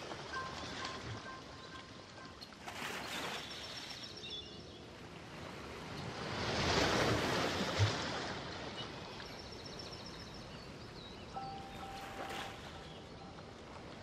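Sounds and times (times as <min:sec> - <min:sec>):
relaxing instrumental music: 0:11.3 - 0:14.0
faint high tones: 0:11.4 - 0:13.9.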